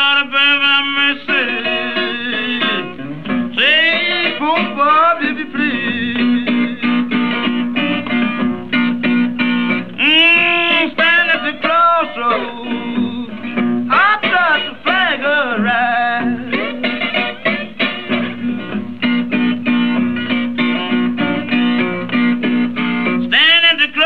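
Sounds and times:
man singing: 0.0 - 7.3, 10.0 - 16.9, 23.2 - 24.0
slide acoustic guitar: 0.0 - 24.0.

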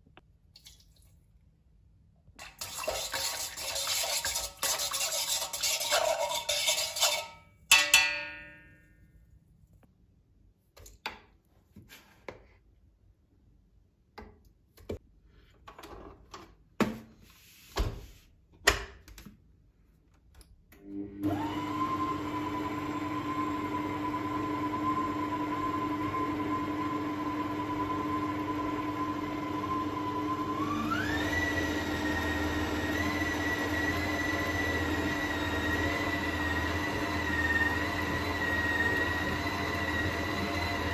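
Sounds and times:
stand mixer motor whine: 20.8 - 40.9.

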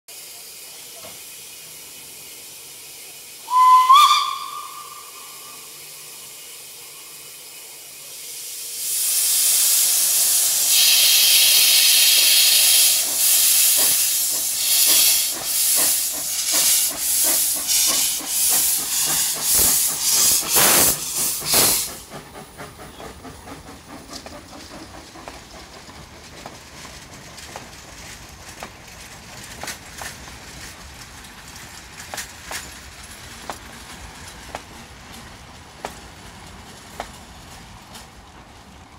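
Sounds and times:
steam hissing: 0.1 - 30.8
locomotive exhaust chuffs: 0.6 - 30.5
steam locomotive whistle: 3.4 - 5.8, 10.7 - 13.0.

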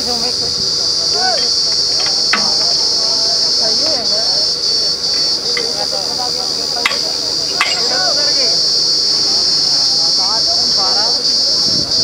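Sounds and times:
faint voices: 0.0 - 12.0
insects shrilling: 0.0 - 12.0
sharp click: 2.0 - 3.1, 6.8 - 8.0.

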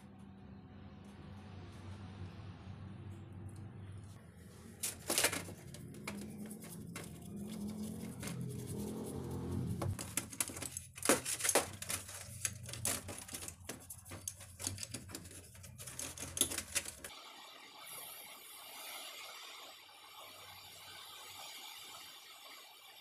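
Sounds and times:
toothbrush scrubbing metal gear: 4.8 - 17.1
spray paint hissing: 17.1 - 23.0.

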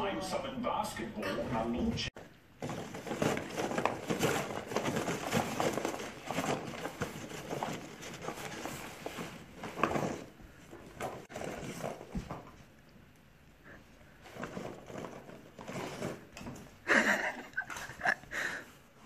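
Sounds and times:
dog rustling through cardboard: 2.6 - 12.6, 14.2 - 16.6.

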